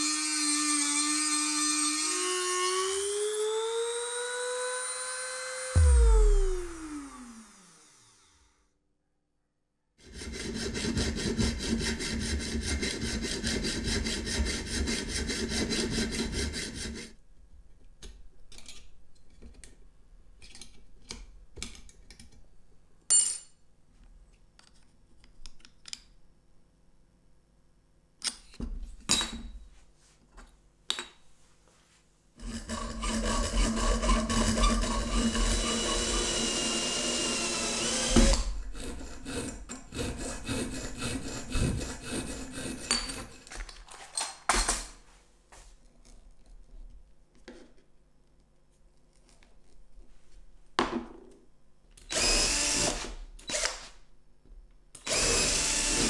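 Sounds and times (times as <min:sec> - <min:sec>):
small power tool whining: 0:00.0 - 0:08.6, 0:32.4 - 0:39.5, 0:52.1 - 0:53.9, 0:55.0 - 0:56.0
hand file rasping on metal tube: 0:10.0 - 0:17.2, 0:32.4 - 0:36.4, 0:38.6 - 0:43.3.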